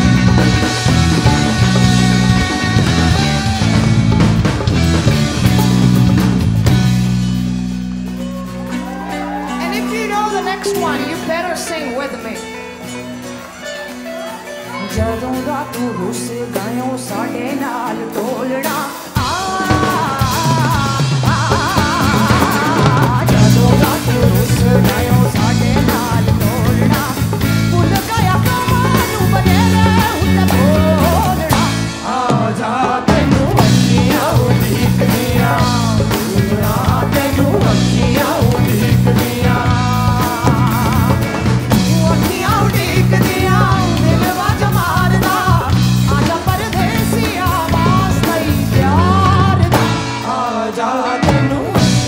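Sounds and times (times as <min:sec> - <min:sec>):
drums with a steady beat: 0:00.0 - 0:12.9, 0:14.9 - 0:52.0
bass guitar: 0:00.0 - 0:52.0
guitar: 0:00.0 - 0:52.0
woman singing into a microphone: 0:14.7 - 0:52.0.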